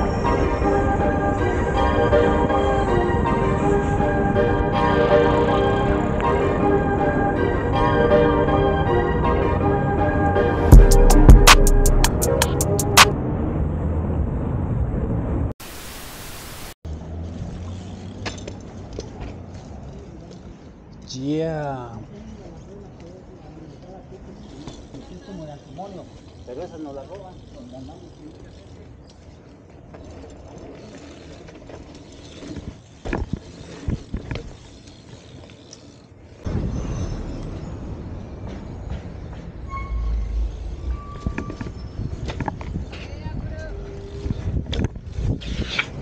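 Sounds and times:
bike rolling on sidewalk: 0.0s - 11.0s, 16.8s - 46.0s
static hiss: 15.6s - 16.8s
bike knocks and clatters: 17.5s - 20.6s, 29.1s - 39.6s, 41.3s - 46.0s.

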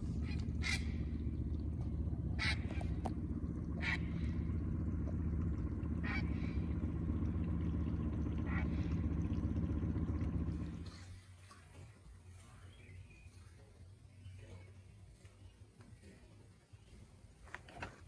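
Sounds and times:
herons squawking: 0.0s - 10.8s
low rumble: 0.0s - 11.2s.

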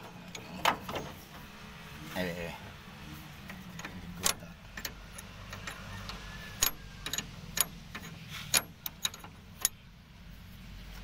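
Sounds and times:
spanner clinking on metal nuts: 3.5s - 9.8s.

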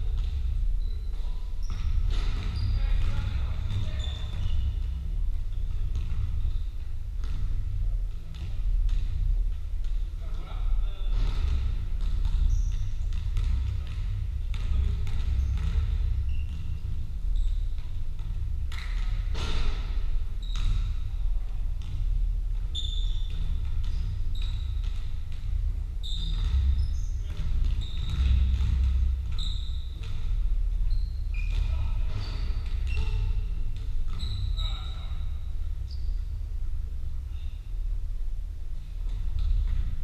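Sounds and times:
basketballs bouncing on wooden floor: 0.0s - 37.4s, 38.9s - 40.0s
steady low rumble: 0.0s - 40.0s
shoe squeaks: 0.8s - 5.6s, 12.2s - 13.1s, 15.3s - 17.7s, 19.4s - 21.1s, 22.7s - 24.8s, 26.0s - 35.3s.

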